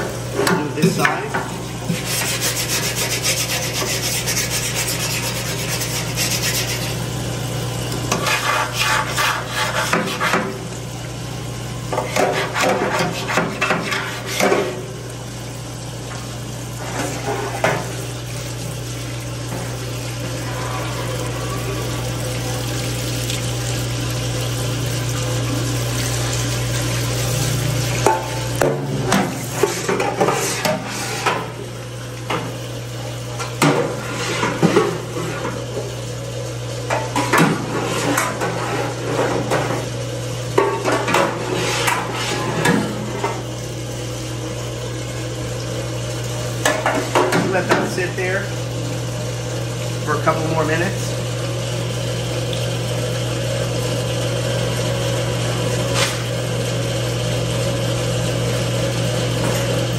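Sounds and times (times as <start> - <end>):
pump hum: 0.0 - 59.9
brush scrubbing steel vat: 0.6 - 7.1, 8.1 - 10.6, 11.9 - 14.9, 16.8 - 18.0, 28.0 - 31.6, 33.6 - 35.6, 36.9 - 39.9, 40.6 - 43.4.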